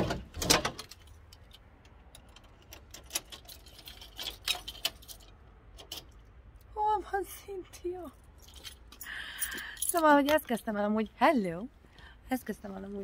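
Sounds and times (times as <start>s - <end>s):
keys jingling: 0.8s - 6.2s, 8.1s - 10.6s.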